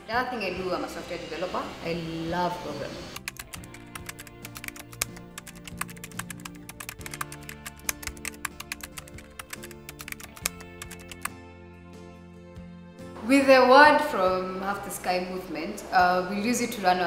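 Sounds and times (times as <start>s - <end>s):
background music with held notes: 0.0s - 17.0s
keyboard typing clicks: 3.2s - 11.3s.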